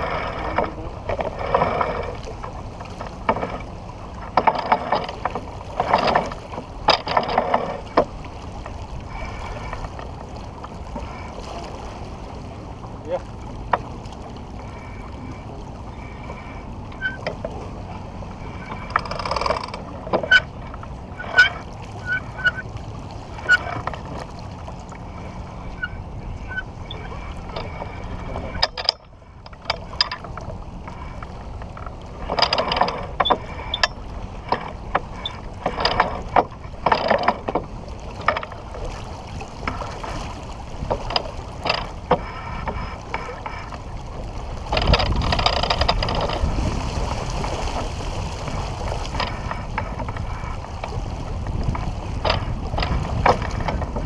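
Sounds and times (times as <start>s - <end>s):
rigging clicks and knocks: 0.0s - 11.2s, 16.9s - 17.6s, 18.6s - 22.6s, 26.5s - 39.0s, 40.8s - 43.8s, 44.6s - 46.6s, 48.4s - 54.0s
wind and water rushing: 0.0s - 54.0s.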